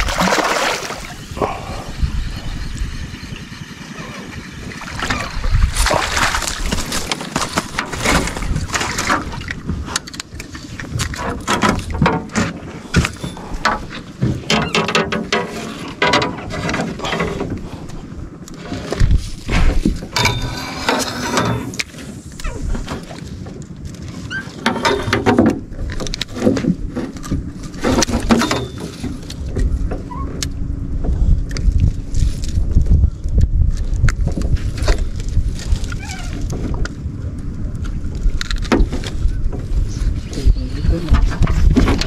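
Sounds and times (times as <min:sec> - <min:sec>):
fish splashing at surface: 0:00.0 - 0:01.2, 0:04.8 - 0:09.1
net frame clattering against boat: 0:04.8 - 0:17.9, 0:18.6 - 0:31.3, 0:40.9 - 0:42.0.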